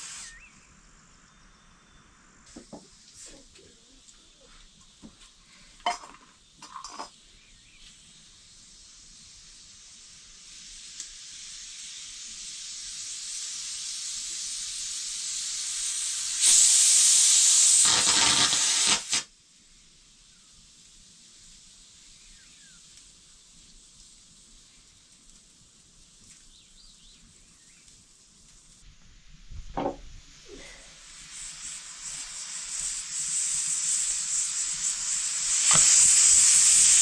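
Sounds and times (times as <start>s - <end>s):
loud blast of escaping steam: 0.0s - 3.4s, 7.4s - 23.5s, 29.2s - 37.0s
pressure cooker steam hiss: 0.0s - 37.0s.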